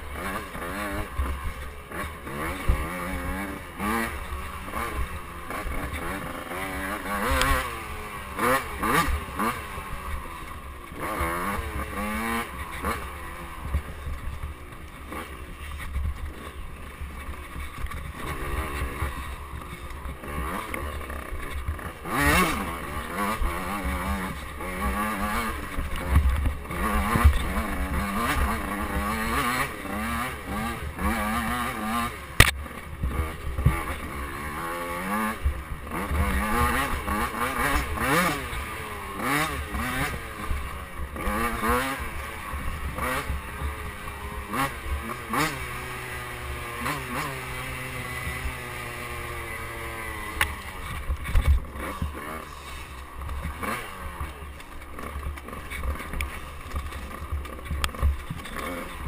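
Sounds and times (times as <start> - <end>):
dirt bike engine revving: 0.0 - 59.0.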